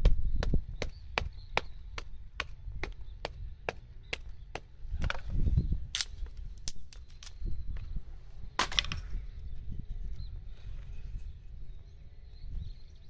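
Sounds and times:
hatchet chopping wood: 0.0 - 5.2.

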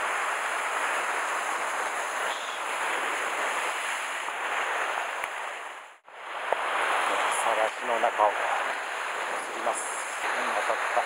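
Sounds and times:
surf washing over rocks: 0.0 - 11.0.

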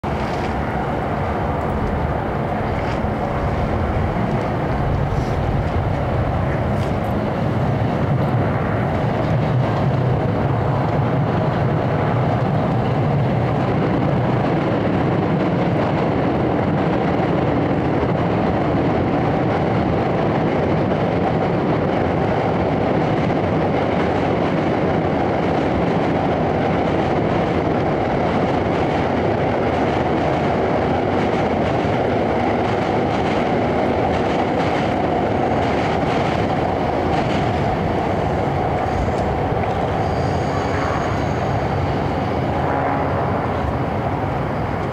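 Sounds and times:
engine droning rumble: 0.0 - 12.6.

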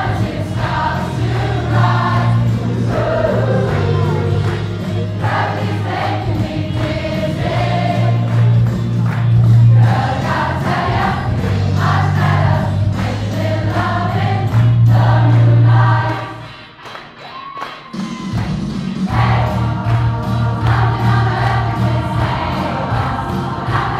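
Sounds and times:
choir singing pop song: 0.0 - 8.6, 9.6 - 16.5, 19.0 - 23.9
deep bass line: 0.0 - 16.1.

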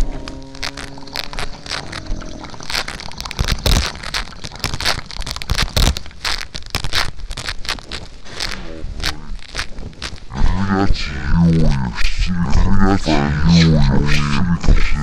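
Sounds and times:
lips smacking: 0.0 - 7.0
tongue clicking: 0.0 - 7.6.

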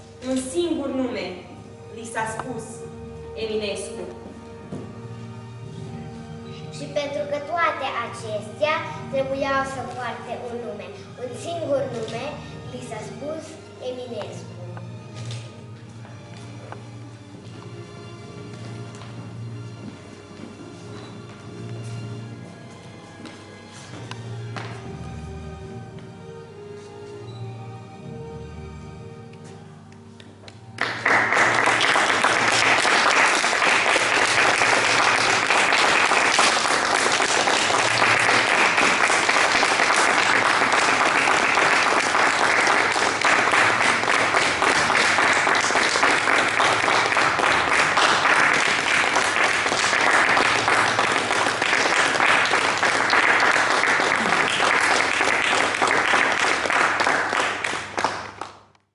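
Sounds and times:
faint music: 0.0 - 58.7
audience applauding: 30.8 - 58.8.

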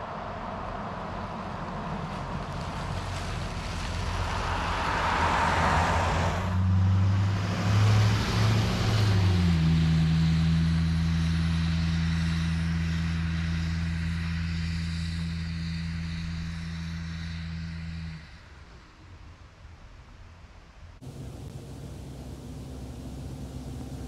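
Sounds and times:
pickup truck engine passing: 0.1 - 12.2, 21.0 - 24.0.

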